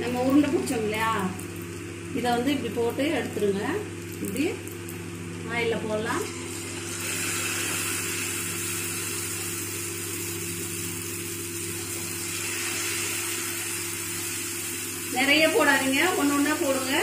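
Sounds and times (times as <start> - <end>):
steady low hum: 0.0 - 17.0
oil sizzling: 6.0 - 17.0.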